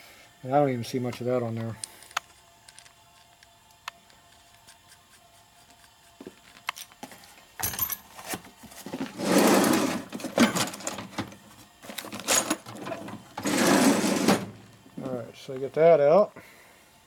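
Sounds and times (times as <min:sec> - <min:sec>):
workshop tool running: 0:07.6 - 0:15.2.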